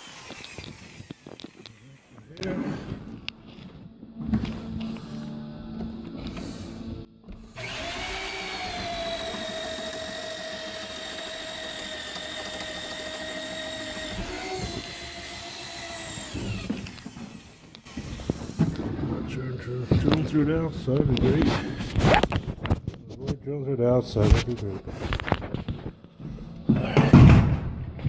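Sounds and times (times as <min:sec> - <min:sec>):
electric drill boring through wood: 0:00.0 - 0:03.2, 0:04.4 - 0:19.0.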